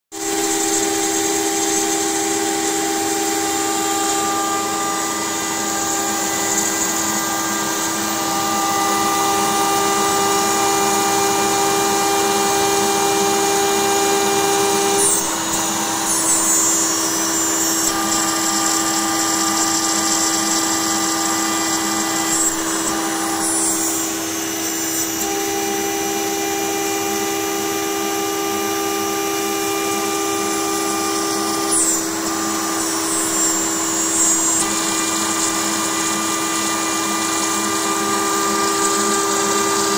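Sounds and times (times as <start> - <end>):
router spindle whine: 0.1 - 39.9
bit cutting plywood: 0.2 - 39.9.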